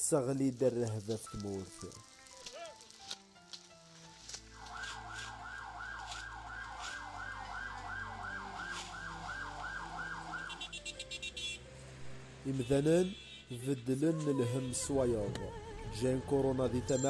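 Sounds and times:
emergency siren yelping: 0:04.6 - 0:10.9.

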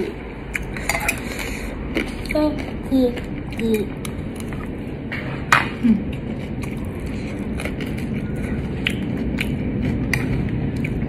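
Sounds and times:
low background rumble: 0:00.0 - 0:11.0
chewing rice: 0:05.9 - 0:11.0.

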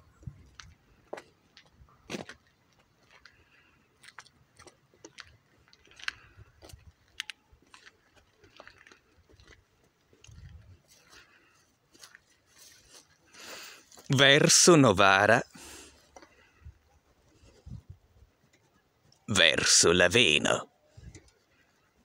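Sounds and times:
wind noise: 0:00.0 - 0:00.8, 0:10.2 - 0:10.9, 0:17.4 - 0:18.3, 0:21.0 - 0:21.2
footsteps on gravel: 0:00.4 - 0:14.4.

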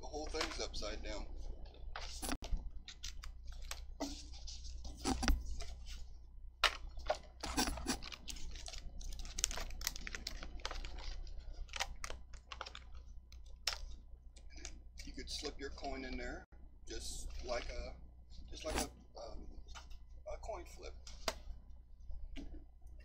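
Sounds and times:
steady low hum: 0:00.0 - 0:23.0
plastic pages crinkling: 0:02.0 - 0:06.0, 0:06.6 - 0:14.8.

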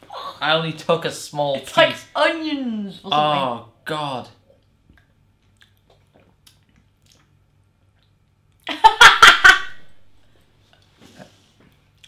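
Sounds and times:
woman laughing: 0:08.7 - 0:09.8.

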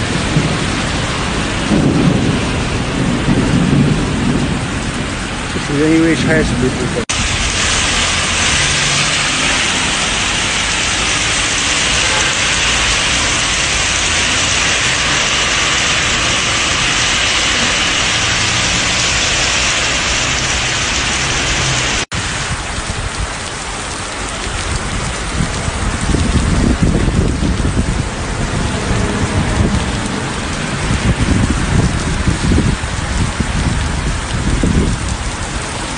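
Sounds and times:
heavy rain pouring on road: 0:00.0 - 0:35.9
low rumble: 0:24.8 - 0:35.9.

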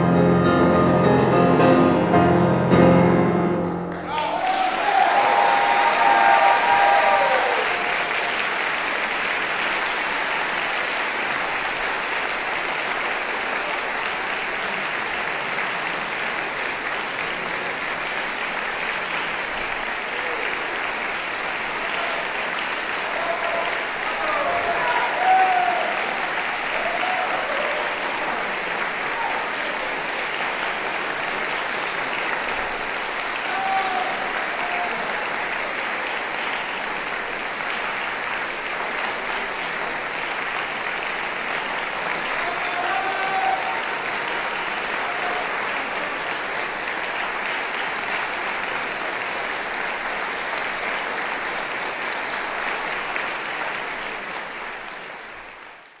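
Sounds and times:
audience applauding: 0:03.5 - 0:56.0.

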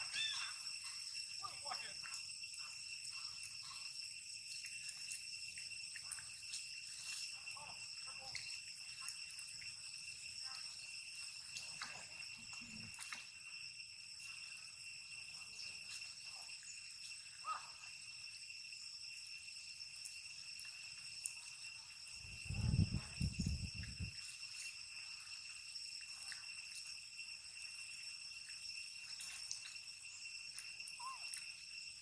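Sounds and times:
high-pitched insect drone: 0:00.0 - 0:32.0.

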